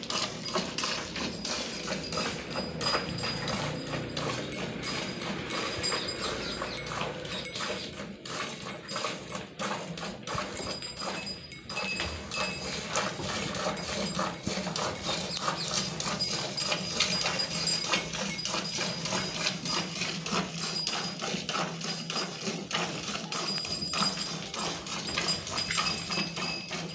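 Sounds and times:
milk squirting into steel bucket: 0.0s - 11.4s.

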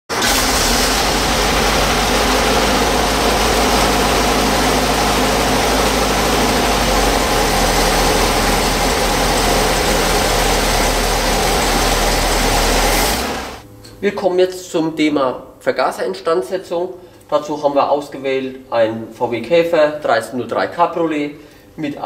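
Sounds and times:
engine idling: 0.1s - 13.6s.

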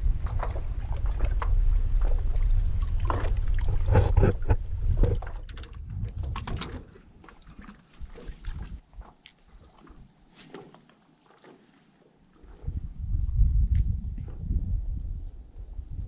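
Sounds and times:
wind rumble on microphone: 0.0s - 7.2s, 8.0s - 10.1s, 12.4s - 16.0s
water lapping against a board: 0.0s - 14.5s
knocks and splashes of gear: 0.2s - 11.7s.

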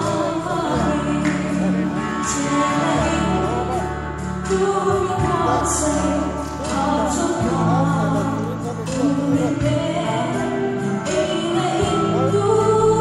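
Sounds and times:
instrumental accompaniment: 0.0s - 13.0s
man singing into a microphone: 0.0s - 13.0s.

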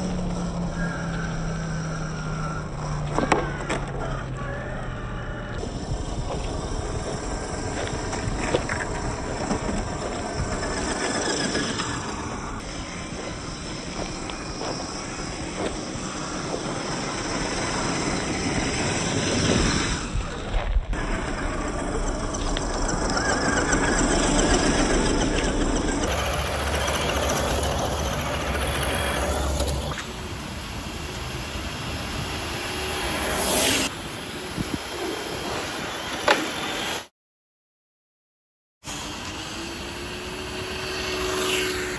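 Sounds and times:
vehicle engine rumbling: 0.0s - 36.0s
rc truck crunching over ground: 5.5s - 37.1s, 38.9s - 41.9s
brief whoosh: 32.0s - 37.0s.

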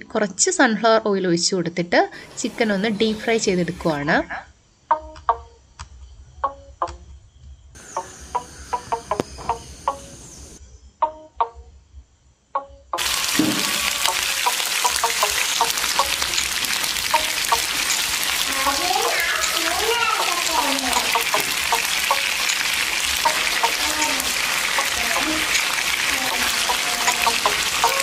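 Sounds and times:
soft background music: 11.0s - 11.7s
chicken frying in oil: 13.0s - 28.0s.

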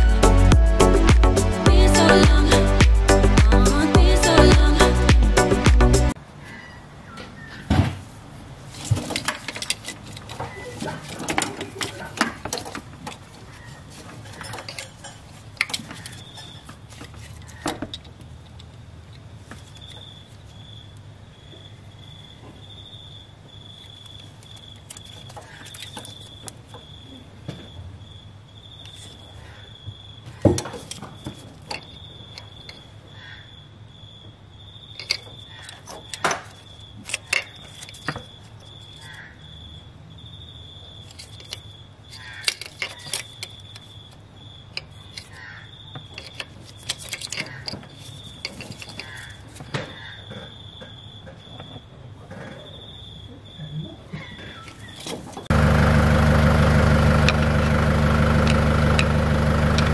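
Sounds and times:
low hum: 55.5s - 59.9s.

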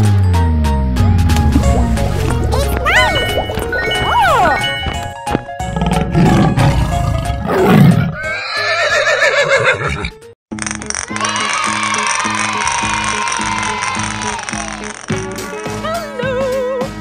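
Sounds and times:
children's background music: 0.0s - 8.4s, 11.0s - 17.0s
wavering horse-like whinny: 7.5s - 10.1s.

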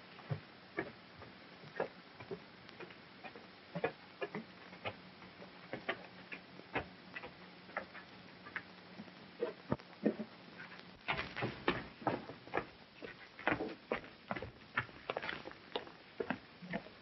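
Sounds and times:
faint steady hum: 0.0s - 17.0s
boots on wooden steps: 11.1s - 15.5s.

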